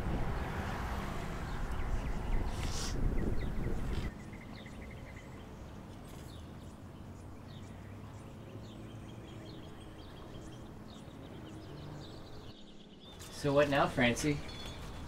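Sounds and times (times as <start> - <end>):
small birds chirping: 1.2 - 15.0.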